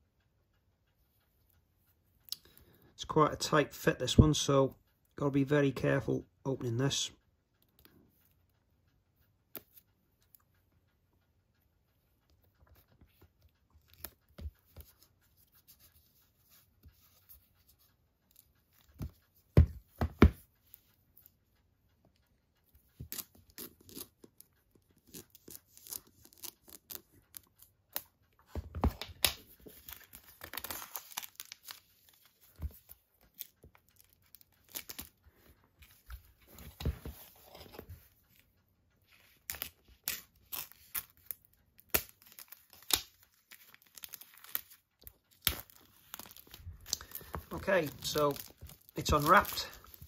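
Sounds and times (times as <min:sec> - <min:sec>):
shrink-wrap crinkling and tearing: 0:29.1 - 0:32.2, 0:39.5 - 0:50.0.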